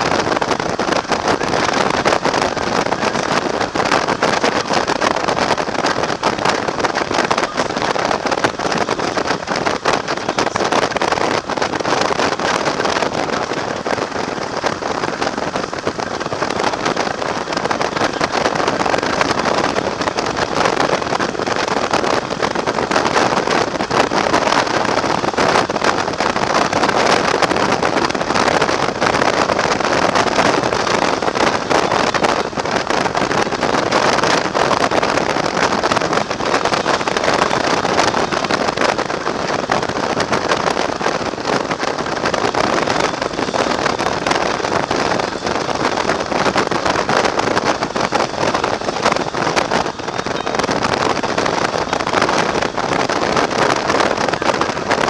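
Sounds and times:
road noise: 0:00.0 - 0:55.0
wind rushing over microphone: 0:00.0 - 0:55.0.

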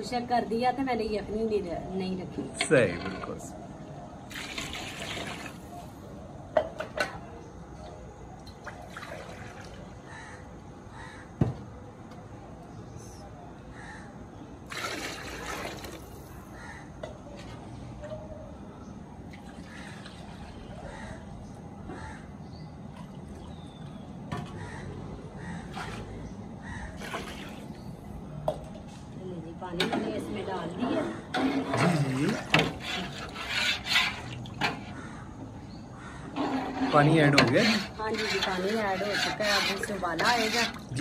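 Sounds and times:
crows cawing: 0:10.0 - 0:11.5, 0:13.7 - 0:14.2, 0:16.5 - 0:17.0, 0:20.8 - 0:22.4, 0:24.4 - 0:27.2, 0:34.7 - 0:36.4.

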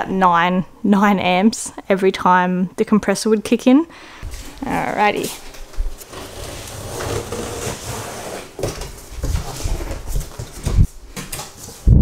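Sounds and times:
cardboard scraping and rustling: 0:04.3 - 0:11.8.

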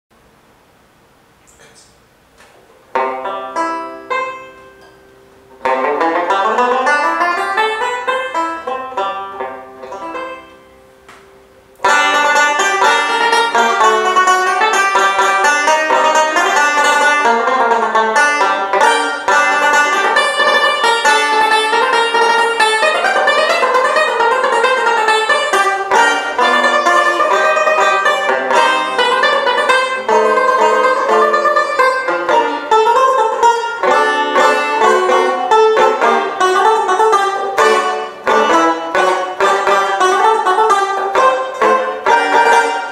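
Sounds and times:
banjo picking notes and chords: 0:02.8 - 0:42.9.

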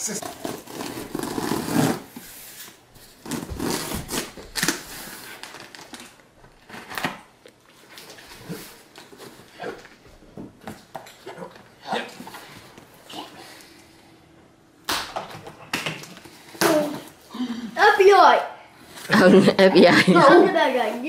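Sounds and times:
scissors slitting packing tape: 0:03.2 - 0:04.8.

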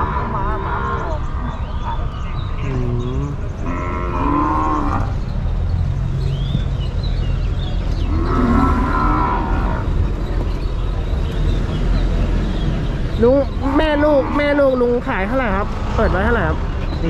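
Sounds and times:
cattle mooing: 0:02.6 - 0:05.2, 0:08.1 - 0:10.0, 0:13.6 - 0:15.0.

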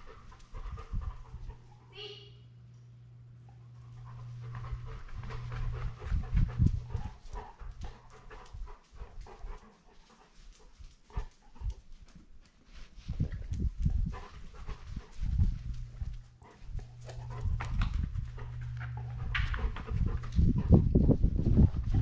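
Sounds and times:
dog panting: 0:00.0 - 0:02.0, 0:03.4 - 0:22.0
paws thudding: 0:04.2 - 0:12.4, 0:13.2 - 0:22.0
dog claws clicking on floor: 0:16.8 - 0:20.7.

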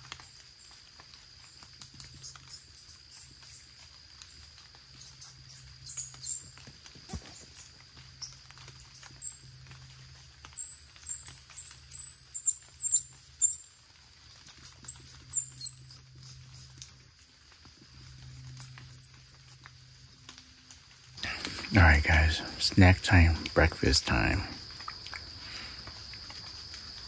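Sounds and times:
squirrel call squeaky chirps: 0:01.6 - 0:04.0, 0:05.0 - 0:06.5, 0:07.1 - 0:20.3.

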